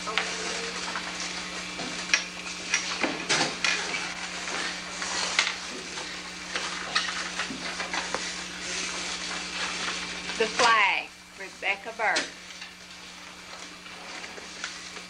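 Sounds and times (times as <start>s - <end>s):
steady hiss and low hum: 0.0s - 15.0s.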